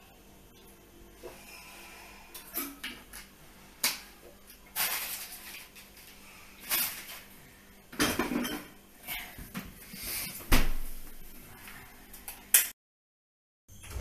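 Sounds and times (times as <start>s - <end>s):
kitchen items knocking and clinking: 7.9s - 8.8s.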